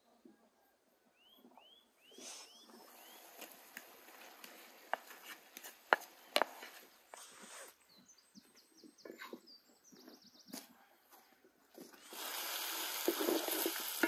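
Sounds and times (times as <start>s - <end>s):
birds chirping: 1.1s - 11.1s.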